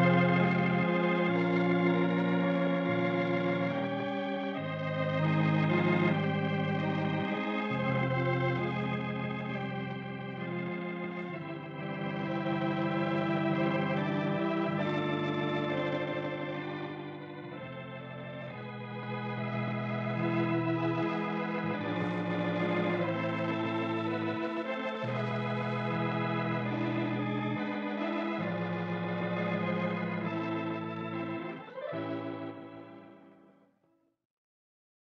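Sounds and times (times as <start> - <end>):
organ playing slow chords: 0.0 - 33.6.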